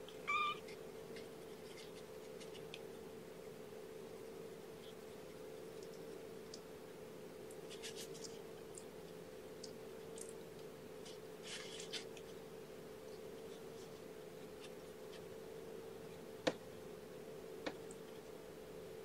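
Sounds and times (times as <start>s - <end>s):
faint hum: 0.0s - 19.0s
scratching and rustling on fabric: 11.0s - 12.4s.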